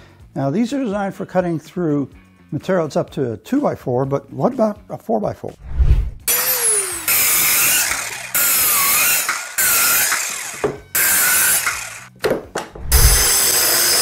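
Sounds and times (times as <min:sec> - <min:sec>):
saw blade cutting wood: 0:06.2 - 0:12.1, 0:12.8 - 0:14.0
circular saw motor whine: 0:06.3 - 0:12.0, 0:12.9 - 0:14.0.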